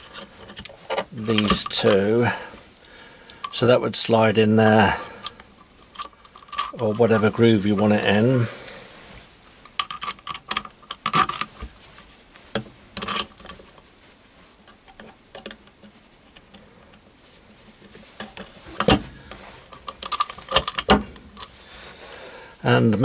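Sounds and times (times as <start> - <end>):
small metal parts clinking: 0.0 - 3.6, 5.2 - 7.4, 9.7 - 11.6, 13.0 - 13.6, 19.7 - 21.5.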